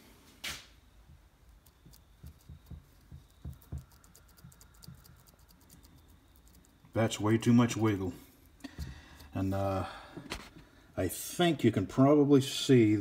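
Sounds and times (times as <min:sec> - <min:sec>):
chain rubbing: 0:01.5 - 0:08.6.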